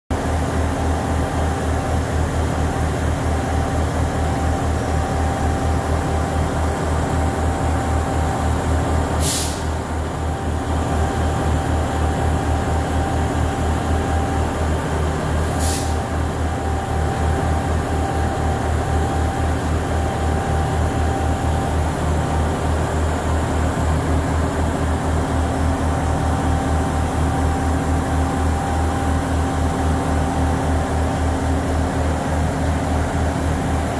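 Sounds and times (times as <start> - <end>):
diesel train engine idling: 0.1 - 33.9
short sharp hisses: 9.2 - 9.8, 15.5 - 16.0.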